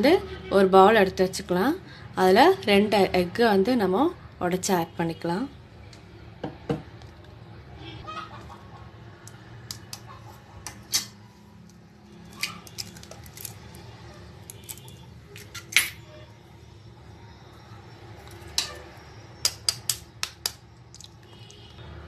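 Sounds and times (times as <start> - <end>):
eggshell cracking: 19.4 - 21.5.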